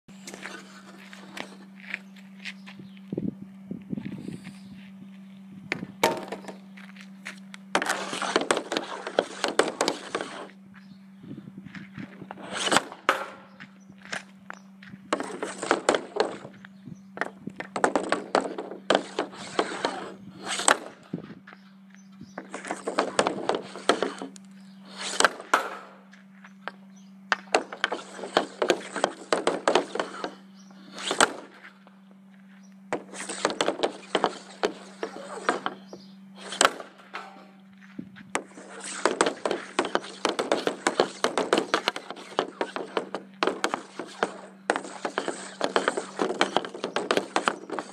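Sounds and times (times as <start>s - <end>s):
faint steady hum: 0.1s - 47.9s
hockey stick scraping concrete: 6.0s - 6.6s, 7.3s - 10.6s, 12.2s - 14.2s, 15.1s - 16.6s, 17.2s - 21.1s, 22.4s - 26.1s, 27.4s - 31.7s, 32.9s - 47.9s
puck sliding: 7.3s - 10.6s, 12.2s - 14.2s, 15.1s - 16.5s, 17.6s - 21.0s, 22.4s - 26.0s, 27.4s - 31.7s, 32.9s - 47.9s.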